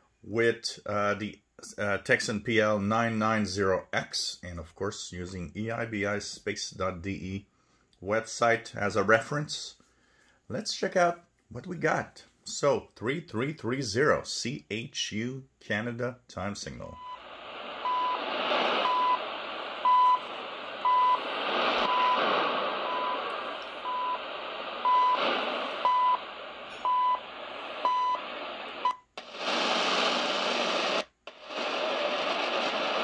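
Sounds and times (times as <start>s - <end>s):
shortwave radio static: 17.0s - 33.0s.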